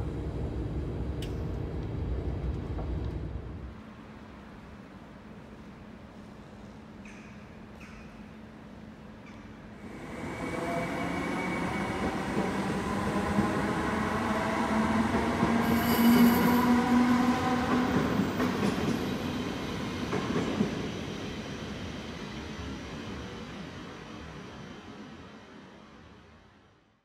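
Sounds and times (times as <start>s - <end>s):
electric train passing: 9.6s - 26.6s
wheel squeal: 15.6s - 16.7s.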